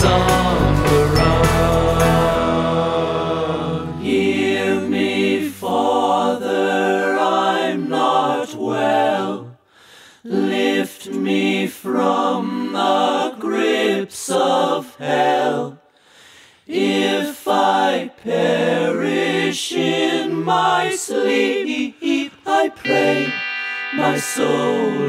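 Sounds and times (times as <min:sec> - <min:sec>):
voices singing in harmony: 0:00.0 - 0:16.0, 0:16.7 - 0:25.0
held musical chord: 0:00.6 - 0:06.6, 0:22.8 - 0:25.0.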